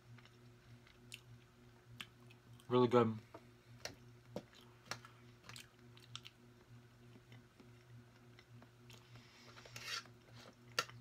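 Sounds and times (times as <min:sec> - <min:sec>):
low steady hum: 0:00.0 - 0:11.0
fork scraping tray: 0:09.6 - 0:10.1.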